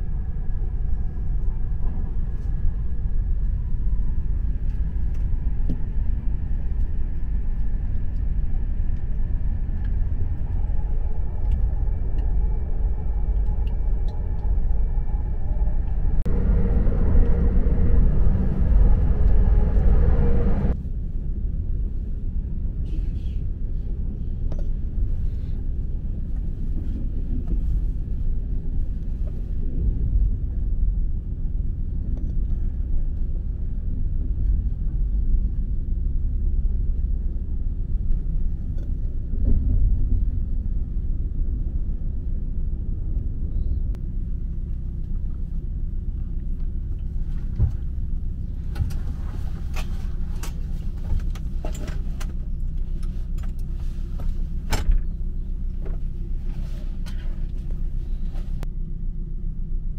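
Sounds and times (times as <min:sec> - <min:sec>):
train wheels rumbling: 0:00.0 - 0:20.9, 0:23.9 - 0:58.7.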